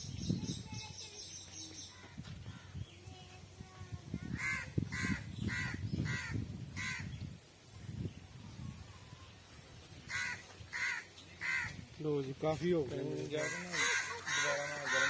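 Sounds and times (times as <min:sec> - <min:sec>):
crow cawing: 0:10.1 - 0:11.8, 0:13.3 - 0:15.0.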